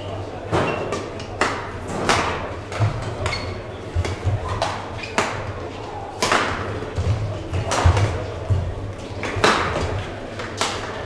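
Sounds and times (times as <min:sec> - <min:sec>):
racket hitting shuttlecock: 0:00.6 - 0:11.0
shoes squeaking on court: 0:03.0 - 0:06.0.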